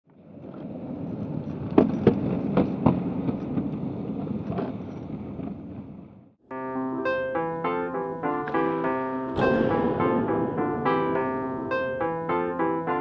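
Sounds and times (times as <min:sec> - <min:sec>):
skateboard wheels rolling on concrete: 0:00.1 - 0:06.3
piano music: 0:06.5 - 0:13.0.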